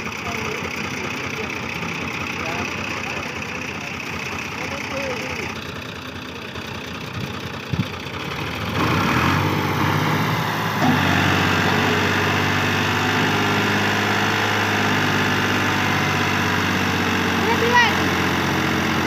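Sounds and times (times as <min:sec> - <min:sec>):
tractor diesel engine straining: 0:00.0 - 0:19.0.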